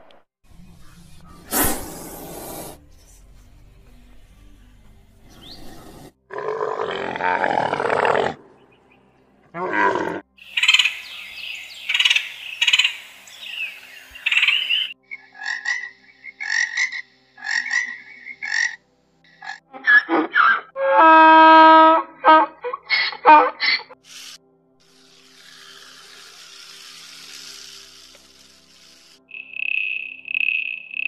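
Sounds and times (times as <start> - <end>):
high bird calls: 10.4 - 18.8, 29.3 - 31.0
frog croaking: 10.4 - 20.0, 29.3 - 31.0.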